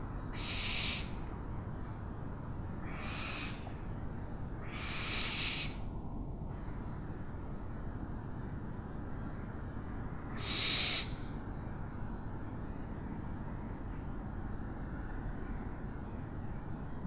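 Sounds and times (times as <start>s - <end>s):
owl screeching: 0.3s - 1.2s, 2.8s - 3.7s, 4.6s - 5.9s, 10.3s - 11.2s.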